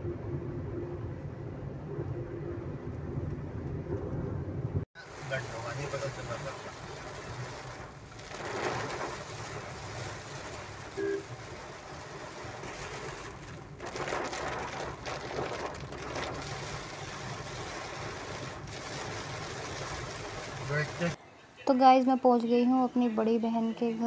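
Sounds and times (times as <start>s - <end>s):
engine and road hum: 0.0s - 21.2s
heavy rain drumming on car roof: 5.0s - 21.2s.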